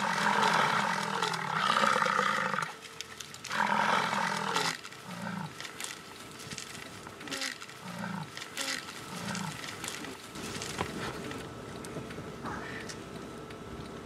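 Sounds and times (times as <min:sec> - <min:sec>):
bison bellowing: 0:00.0 - 0:02.8, 0:03.5 - 0:05.6, 0:07.2 - 0:09.7
bison grunts: 0:07.3 - 0:09.6.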